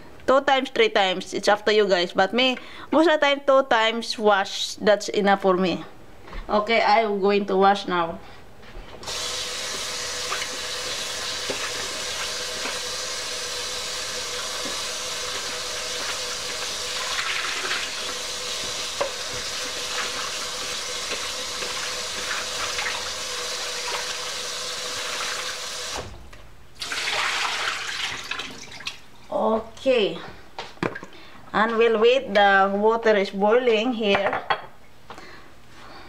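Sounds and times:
tap water running: 0:09.0 - 0:26.1, 0:26.8 - 0:29.2.

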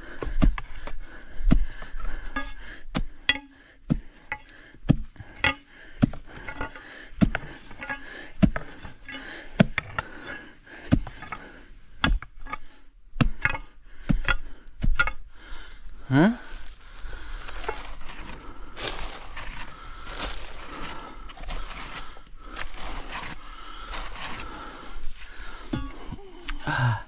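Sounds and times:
digging tool striking hard earth: 0:10.8 - 0:12.6, 0:13.2 - 0:15.3.

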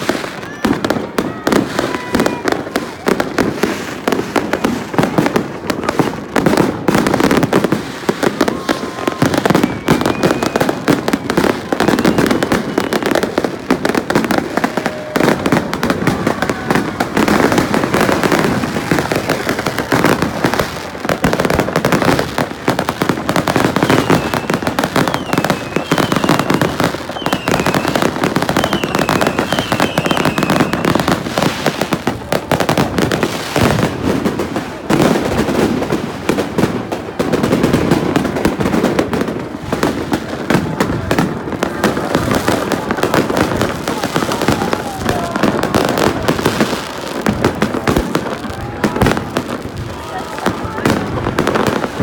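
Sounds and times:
firecrackers crackling and banging: 0:00.0 - 0:52.0
high wavering firework whistles: 0:09.2 - 0:13.2, 0:23.8 - 0:31.1.

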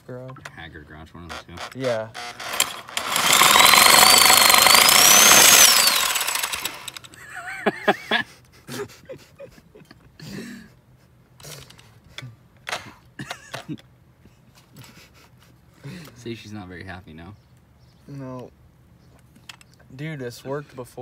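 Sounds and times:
reciprocating saw cutting metal pipe: 0:01.3 - 0:07.1.

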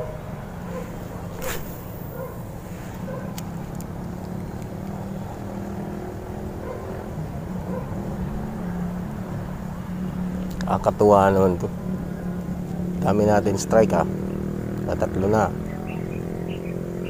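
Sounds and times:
low engine drone: 0:00.0 - 0:05.5.

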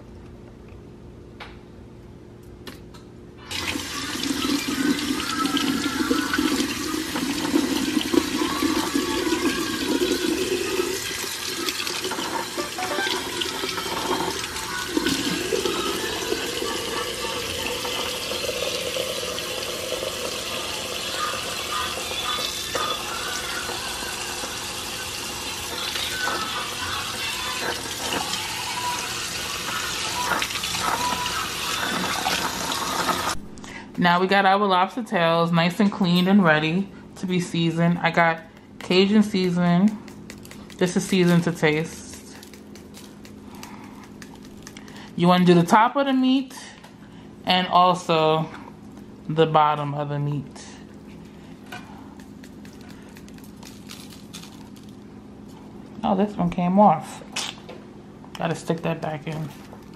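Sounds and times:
faucet water running into sink: 0:03.5 - 0:33.4.

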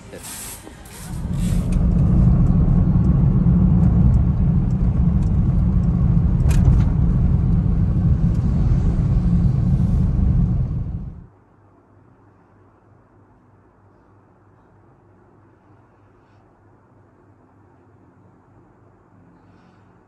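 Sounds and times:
loud low rumble: 0:00.0 - 0:11.3.

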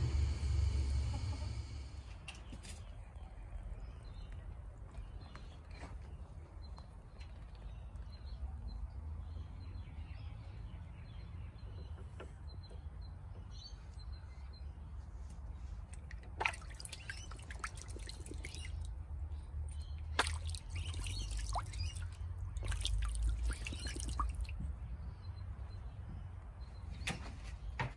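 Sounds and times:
low rumble: 0:00.0 - 0:02.3
water splashing in a pond: 0:15.9 - 0:24.7.

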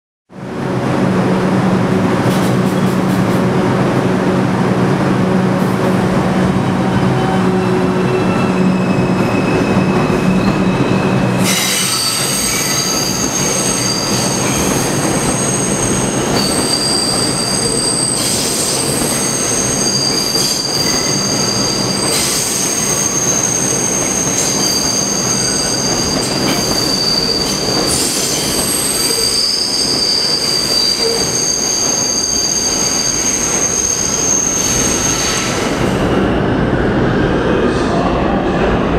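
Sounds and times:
train cars noise: 0:00.7 - 0:38.9
train wheels squealing: 0:06.7 - 0:36.0.

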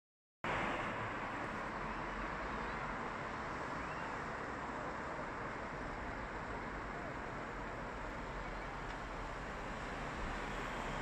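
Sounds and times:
distant crowd murmur: 0:03.7 - 0:09.6.

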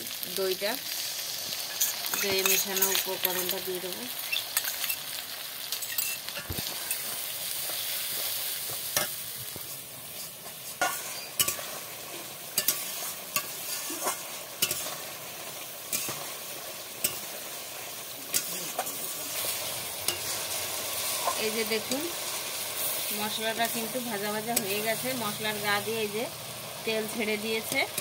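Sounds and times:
food sizzling in oil: 0:00.0 - 0:28.0
spatula scraping pan: 0:10.1 - 0:15.0.

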